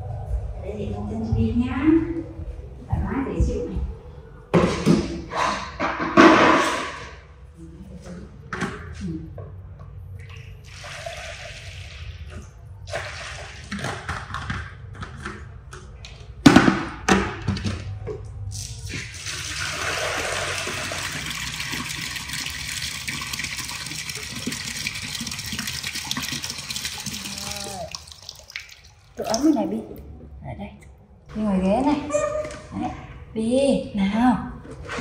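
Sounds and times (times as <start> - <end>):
water running from a tap: 19.2 - 29.8.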